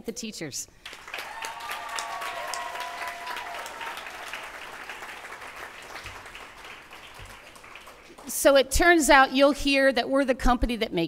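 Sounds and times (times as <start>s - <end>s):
audience applauding: 0.8s - 8.5s
cheers: 0.9s - 8.2s.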